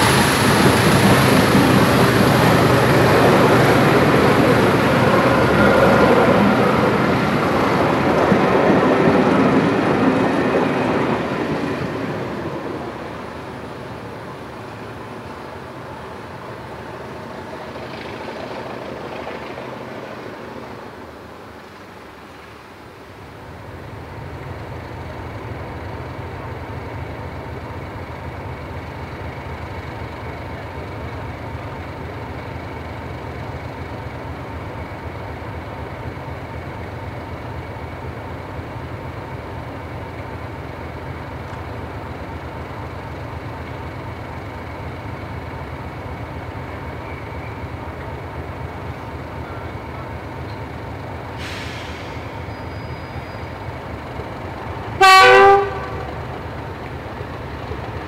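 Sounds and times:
locomotive engine droning: 0:00.0 - 0:58.0
short hiss: 0:51.3 - 0:53.0.

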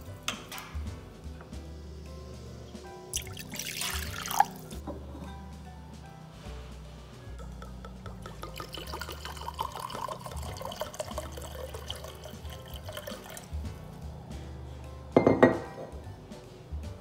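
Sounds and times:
soft background music: 0:00.0 - 0:17.0
liquid pouring into a glass cup: 0:03.2 - 0:04.8, 0:07.4 - 0:13.5.

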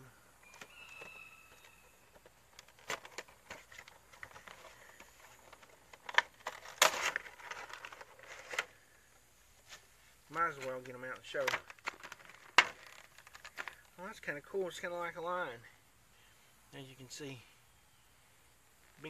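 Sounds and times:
plastic crinkling: 0:00.5 - 0:08.8, 0:10.8 - 0:13.9.

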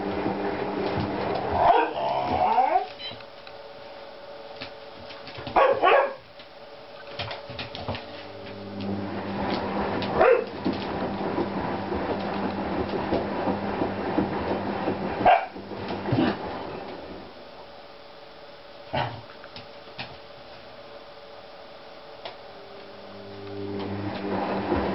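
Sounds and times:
dogs growling: 0:01.3 - 0:02.9
dogs barking: 0:01.5 - 0:02.8, 0:05.5 - 0:06.2, 0:10.2 - 0:10.5, 0:15.2 - 0:15.6
dogs scuffling: 0:04.6 - 0:11.1.

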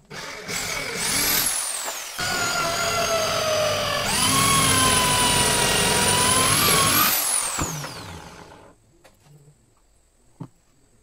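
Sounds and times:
electric drill whining into wood: 0:00.0 - 0:08.7.

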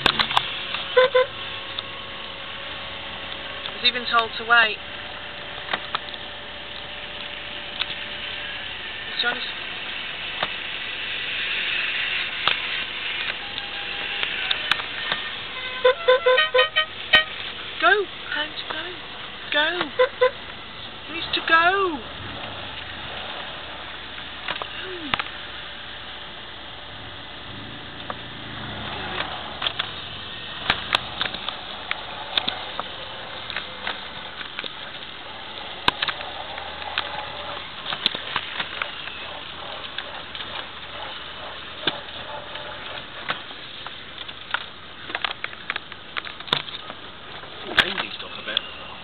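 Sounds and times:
car engine and road noise: 0:00.0 - 0:49.0
sharp clicks: 0:29.2 - 0:47.0.

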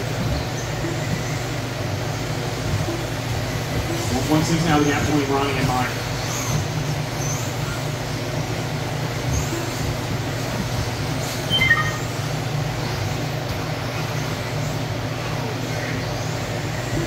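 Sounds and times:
steady low hum: 0:00.0 - 0:17.0
brief high chirp: 0:11.5 - 0:12.1.

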